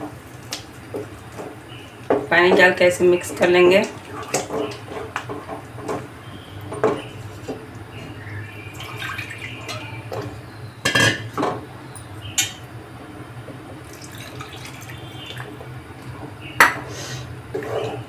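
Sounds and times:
water pouring into curry: 13.9s - 15.6s.

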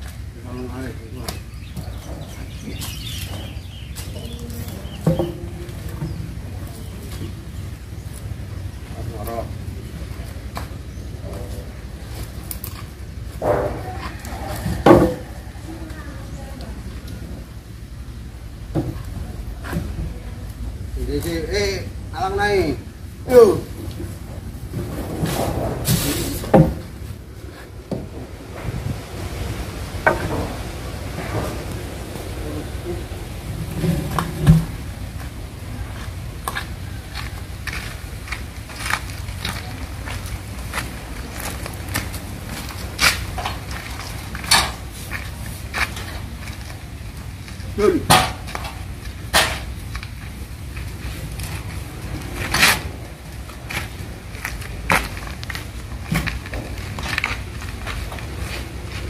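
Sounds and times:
wooden logs knocking and scraping: 1.2s - 17.6s, 23.6s - 59.0s.

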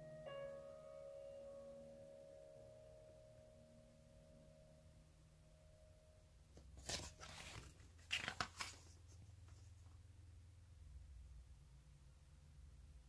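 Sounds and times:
book pages turning: 6.6s - 9.7s.

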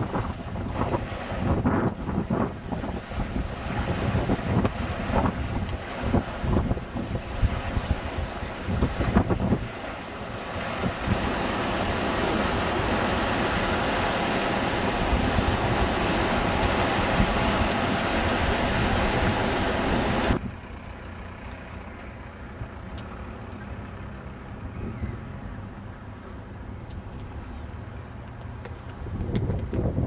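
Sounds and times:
surf washing: 0.0s - 20.4s
wind noise on microphone: 0.0s - 20.7s, 24.6s - 27.5s, 28.5s - 30.0s
low rumble: 10.8s - 27.9s.

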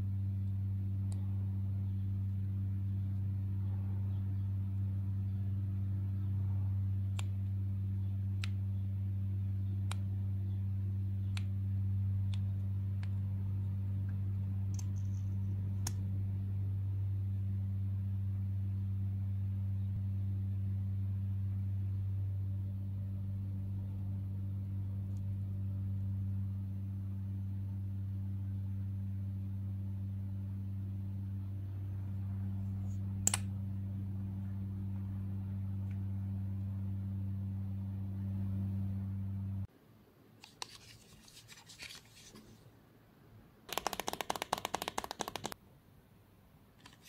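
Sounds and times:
steady low hum: 0.0s - 43.8s
small plastic clicks: 43.7s - 45.6s.

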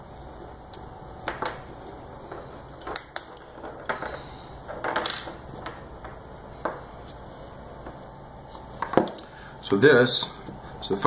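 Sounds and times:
metal parts set on wooden table: 2.3s - 6.8s.

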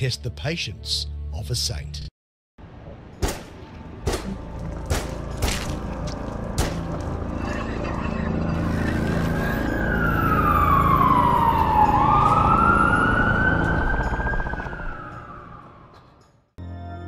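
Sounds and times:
police siren wailing: 8.9s - 16.3s.

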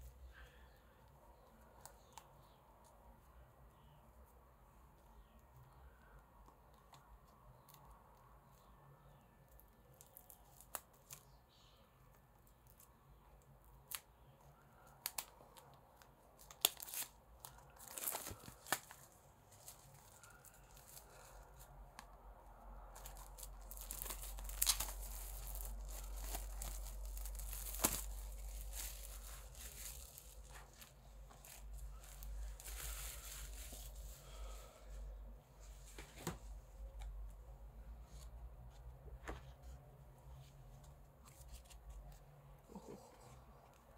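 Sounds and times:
plastic shrink-wrap crinkling: 16.4s - 21.7s, 22.9s - 34.1s.

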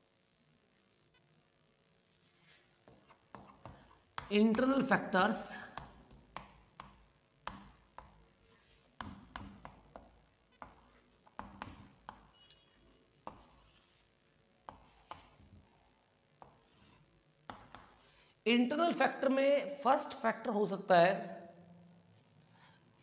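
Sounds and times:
chalk tapping on chalkboard: 2.8s - 12.4s, 13.2s - 14.0s, 14.6s - 15.5s, 16.4s - 18.1s.

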